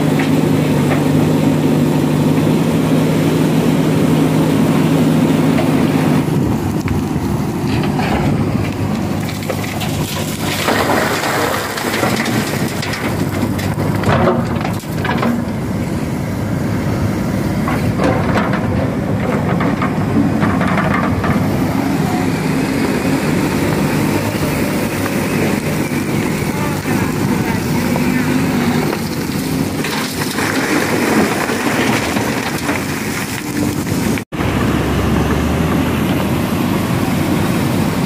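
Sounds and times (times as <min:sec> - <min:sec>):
diesel engine running: 0:00.0 - 0:38.0
stones crunching and clattering: 0:07.7 - 0:15.5, 0:28.8 - 0:34.2.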